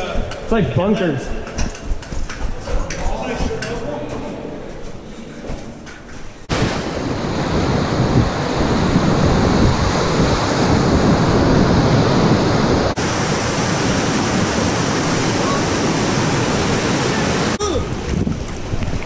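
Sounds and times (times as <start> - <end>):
whitewater rapids rushing: 6.5 - 17.9.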